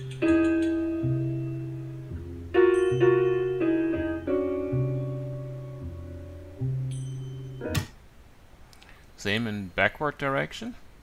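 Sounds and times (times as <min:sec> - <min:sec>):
jazz piano chords: 0:00.0 - 0:08.0.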